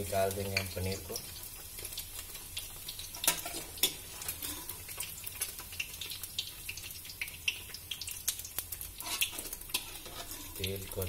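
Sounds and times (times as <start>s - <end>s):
hot oil crackling and sizzling: 0.0s - 11.0s.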